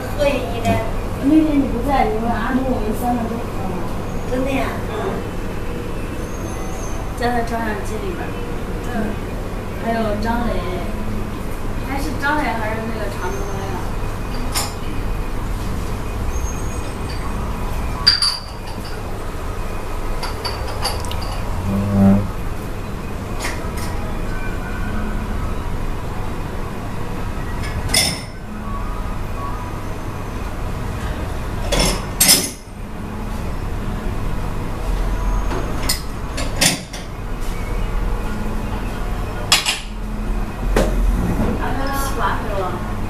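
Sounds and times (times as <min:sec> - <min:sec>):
tableware clinking: 0:18.0 - 0:19.0, 0:20.2 - 0:22.3
steady low hum: 0:18.8 - 0:35.2.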